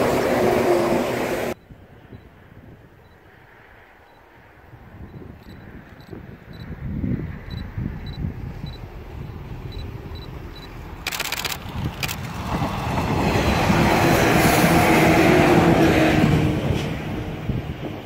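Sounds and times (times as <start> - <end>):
electric train passing: 0.0 - 18.0
burst of rapid clicks: 11.0 - 12.4.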